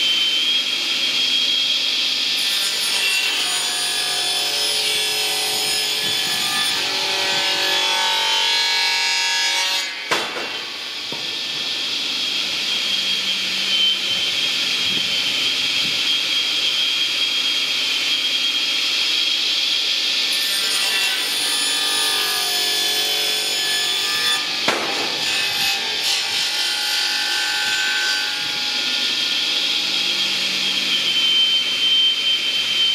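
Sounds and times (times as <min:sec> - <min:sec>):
circular saw cutting logs: 0:00.0 - 0:08.9, 0:09.6 - 0:32.9
sharp knocks: 0:10.1 - 0:11.3, 0:24.7 - 0:25.2.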